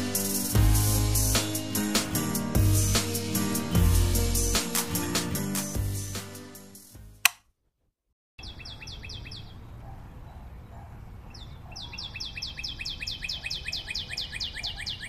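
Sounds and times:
bird chirping rapidly: 8.4 - 9.6, 11.3 - 15.0.

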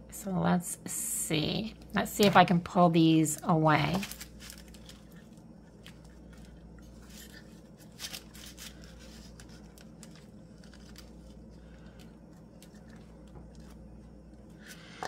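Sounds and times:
paper napkin rustling: 3.8 - 14.0.

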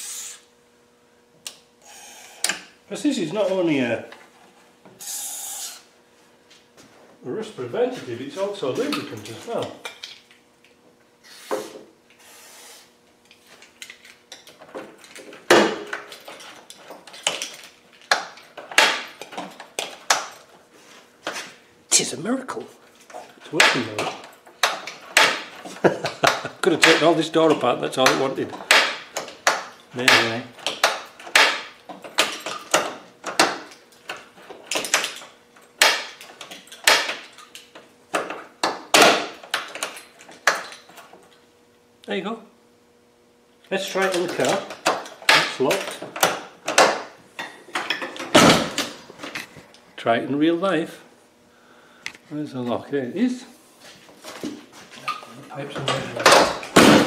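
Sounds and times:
lock mechanism clicking and clunking: 23.6 - 41.2, 44.0 - 49.5, 55.1 - 57.0.

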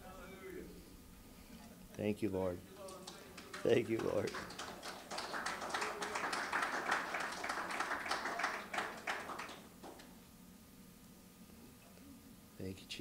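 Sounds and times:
crowd applauding: 2.8 - 10.1.

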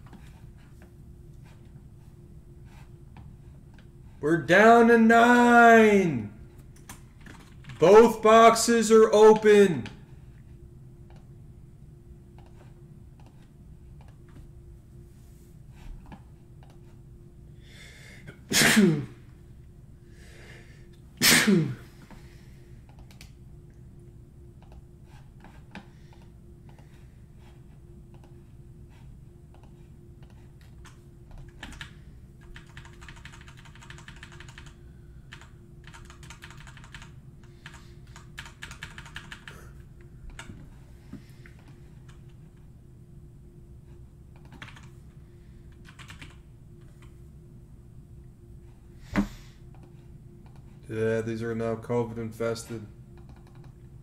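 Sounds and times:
computer keyboard typing: 6.8 - 8.0, 29.5 - 39.6, 44.3 - 45.0, 45.7 - 46.4, 53.2 - 53.8
man sneezing: 18.3 - 19.2, 21.2 - 22.0.

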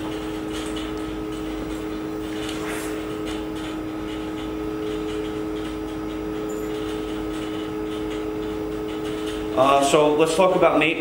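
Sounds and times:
mechanical hum with steady tones: 0.0 - 11.0.

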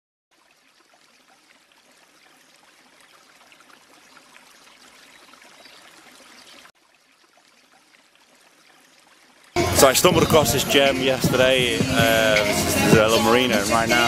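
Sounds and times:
water trickling and lapping: 0.3 - 13.1.

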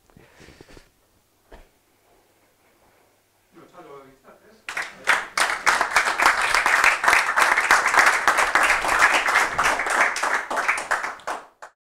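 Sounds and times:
audience applauding: 4.7 - 11.8.

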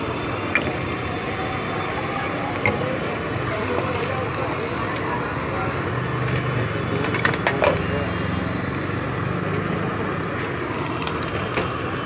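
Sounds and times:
background chatter: 0.0 - 12.0
traffic: 0.0 - 12.0.

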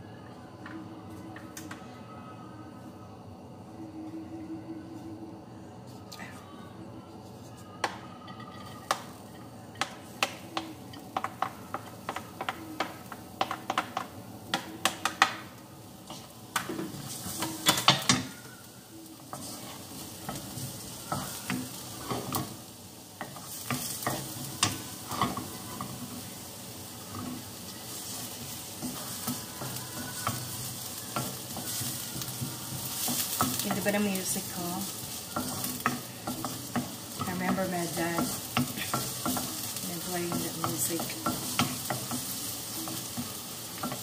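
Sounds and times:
onion and garlic sizzling in oil: 7.1 - 44.0
wooden spoon tapping and scraping: 9.7 - 18.4, 23.2 - 26.4, 27.1 - 44.0.

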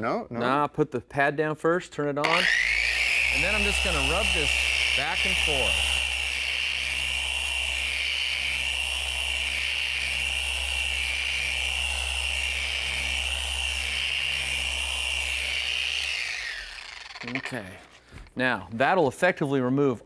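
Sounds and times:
polisher whining on glass: 2.2 - 18.3.

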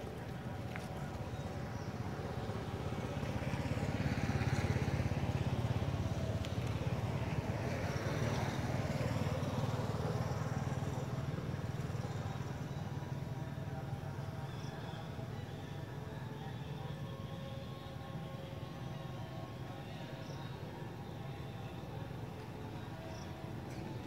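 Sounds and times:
engine running: 0.0 - 14.2.

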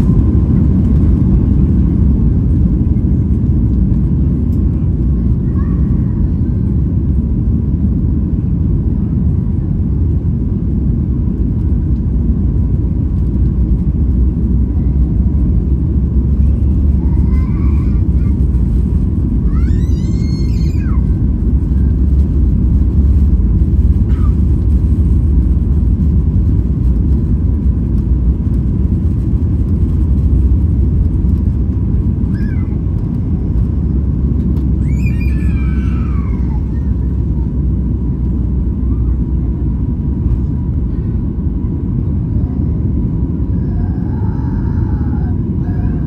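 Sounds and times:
airplane cabin rumble: 0.0 - 46.0
high falling cry: 34.8 - 36.9.

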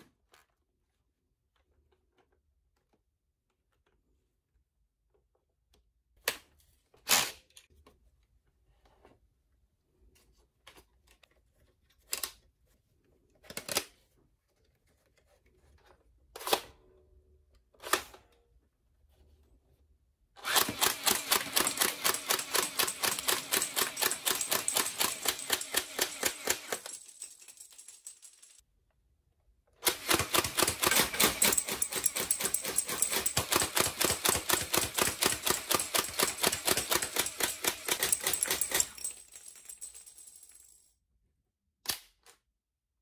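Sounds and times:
toy blaster mechanical rattle: 20.4 - 27.5, 29.8 - 39.4.

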